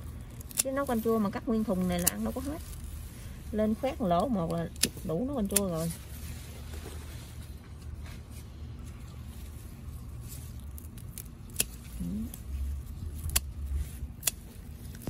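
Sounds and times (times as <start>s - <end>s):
scissors snipping stems: 0.4s - 2.7s, 3.6s - 6.0s, 10.5s - 15.0s.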